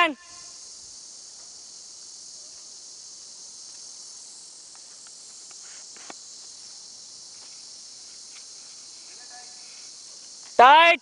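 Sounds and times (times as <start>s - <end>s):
insects droning: 0.0s - 11.0s
faint ticks: 4.6s - 6.3s.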